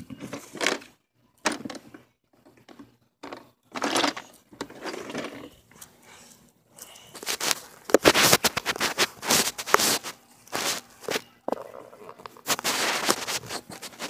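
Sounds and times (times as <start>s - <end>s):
phone rustling against plastic: 6.8s - 14.0s.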